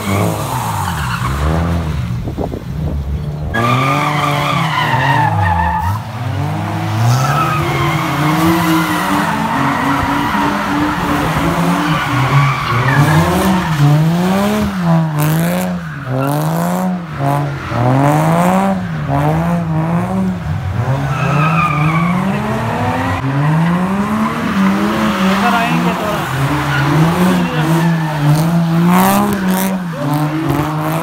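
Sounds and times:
car engine revving: 0.0s - 31.0s
tyres squealing on tarmac: 3.5s - 6.1s, 7.1s - 13.9s, 21.0s - 31.0s.

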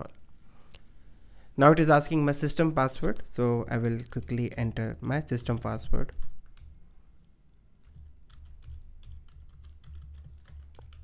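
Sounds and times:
keyboard typing: 6.0s - 6.9s, 7.8s - 11.0s.

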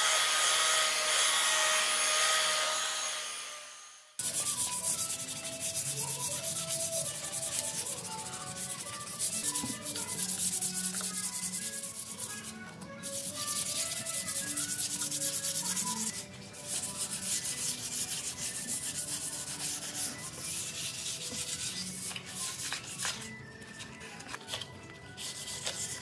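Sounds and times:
sandpaper rubbing on wood: 4.2s - 23.3s, 25.2s - 26.0s.

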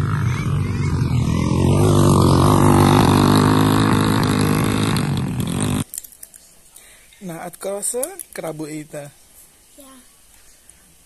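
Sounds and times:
dirt bike engine running: 0.0s - 5.8s.

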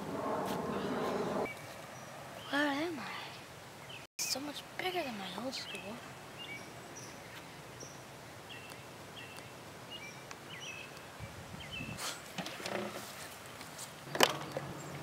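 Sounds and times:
low rumble: 0.0s - 1.5s
small birds chirping: 0.7s - 12.4s.

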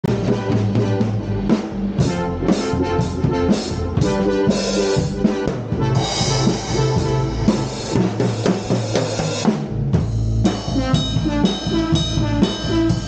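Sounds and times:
sustained pitched notes: 0.0s - 9.2s, 10.5s - 13.0s
drum and cymbal hits: 0.0s - 13.0s.

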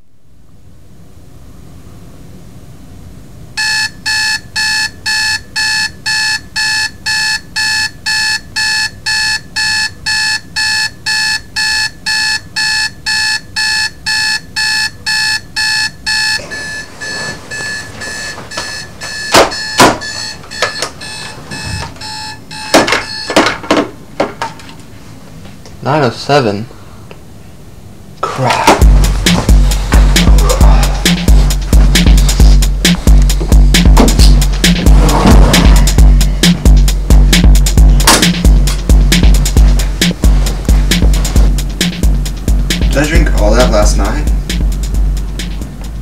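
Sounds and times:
alarm clock beeping: 3.6s - 23.5s, 28.8s - 44.4s
loud knocks: 19.3s - 20.2s, 32.9s - 36.7s.

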